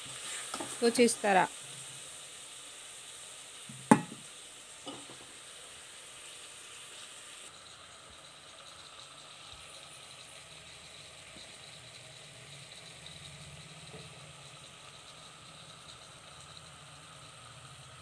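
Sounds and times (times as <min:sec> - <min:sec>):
vegetables sizzling in pot: 0:00.0 - 0:18.0
soft knock: 0:03.8 - 0:04.2.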